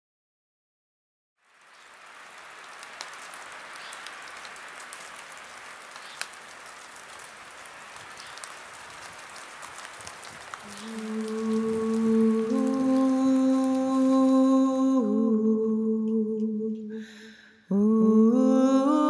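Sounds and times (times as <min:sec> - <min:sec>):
rain-like patter: 0:01.4 - 0:15.3.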